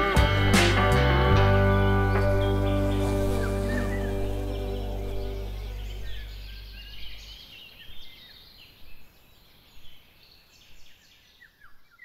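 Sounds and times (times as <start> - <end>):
low soundtrack music note: 0.0 - 7.4
faint outdoor background: 0.0 - 12.0
songbird chirping: 0.0 - 12.0.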